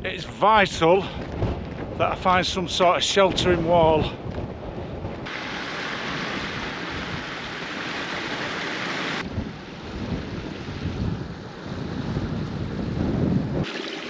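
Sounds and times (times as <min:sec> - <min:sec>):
wind gusting on microphone: 0:00.0 - 0:13.7
waterfall splashing over rocks: 0:05.3 - 0:09.2.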